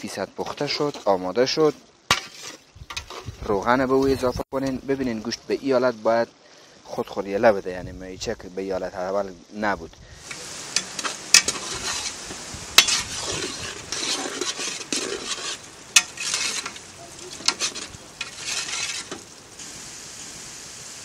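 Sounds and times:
metal ladle scraping a pot: 0:02.1 - 0:03.4, 0:10.2 - 0:19.3
meat sizzling in oil: 0:10.2 - 0:21.0.

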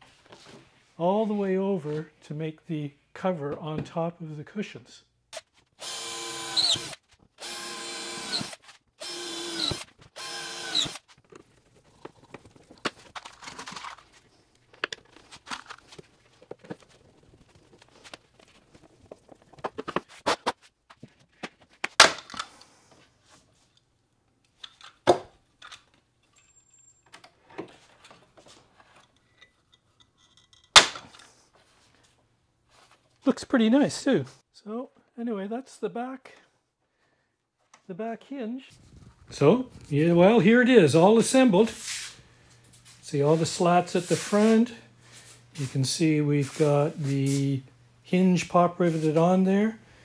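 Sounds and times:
power drill whirring: 0:05.8 - 0:11.1.

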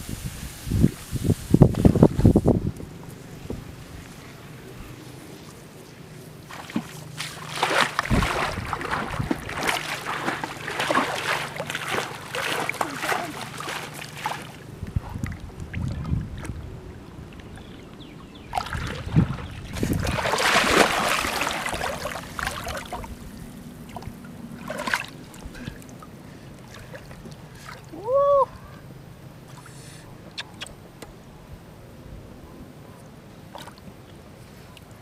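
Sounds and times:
water splashing and sloshing: 0:03.0 - 0:28.1, 0:29.3 - 0:30.7, 0:33.4 - 0:35.0.

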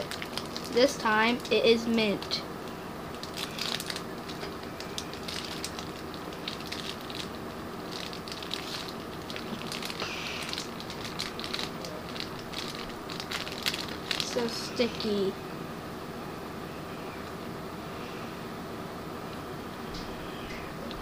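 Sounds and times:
plastic wrapper crinkling: 0:00.0 - 0:01.6, 0:03.1 - 0:15.0.

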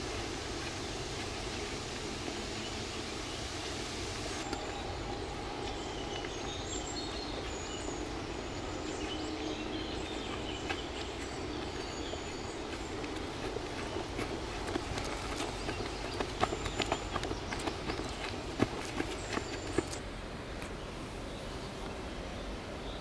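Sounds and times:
high hiss: 0:00.0 - 0:09.5
birds chirping: 0:00.0 - 0:20.0
steady rushing noise: 0:00.0 - 0:22.7.

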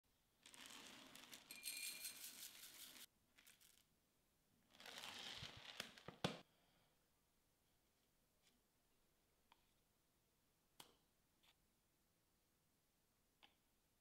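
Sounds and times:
oats pouring into glass bowl: 0:00.4 - 0:03.9.

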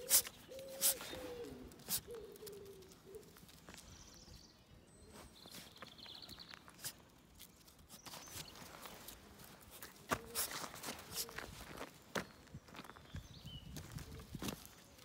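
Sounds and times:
footsteps on gravel: 0:05.2 - 0:15.0.

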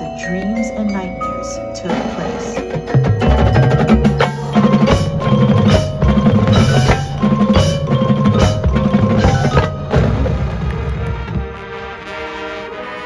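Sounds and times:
ringing mallet percussion: 0:00.0 - 0:10.4
pulsing low drum pattern: 0:01.9 - 0:11.6.

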